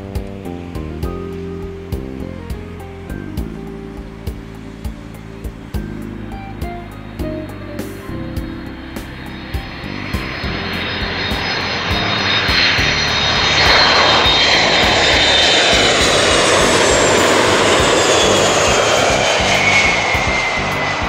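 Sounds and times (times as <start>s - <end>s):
background music: 0.0s - 21.0s
jet passing low overhead: 0.0s - 21.0s
turbine whine: 0.0s - 21.0s.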